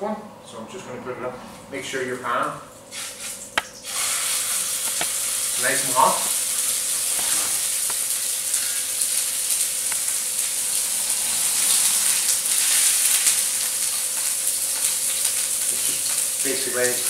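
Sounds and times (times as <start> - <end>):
crackles: 2.9 - 17.0
meat sizzling in a frying pan: 2.9 - 17.0.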